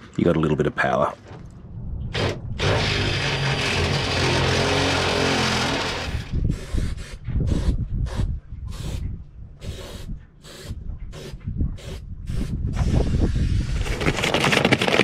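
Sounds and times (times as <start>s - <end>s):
cordless drill drilling: 2.2s - 6.7s
short scraping strokes: 2.2s - 9.0s.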